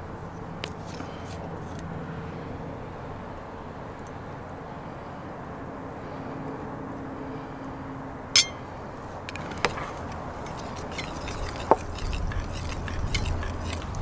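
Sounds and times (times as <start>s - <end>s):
glass bottle clinks: 8.4s - 8.7s
metal spoon scraping steel bowl: 10.4s - 14.0s.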